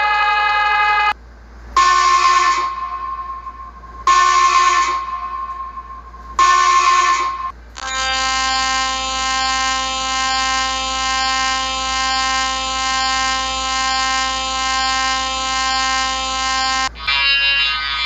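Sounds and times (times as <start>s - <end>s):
different alarm: 1.8s - 17.5s
buzzy electronic alarm tone: 6.4s - 17.8s.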